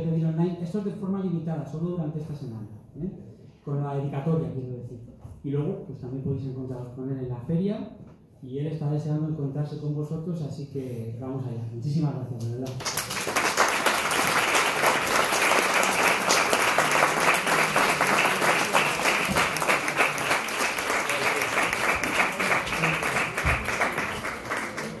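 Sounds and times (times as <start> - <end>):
audience applauding: 12.8 - 25.0.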